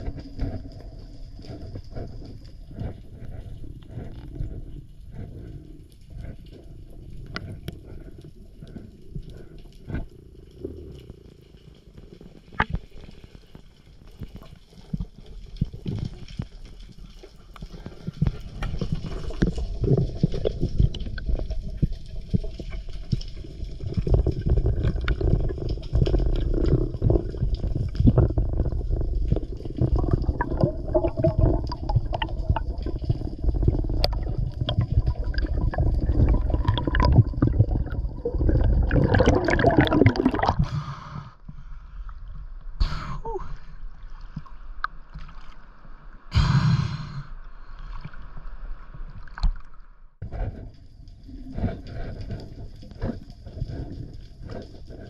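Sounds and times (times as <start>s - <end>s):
water rushing and bubbling: 12.1s - 41.2s.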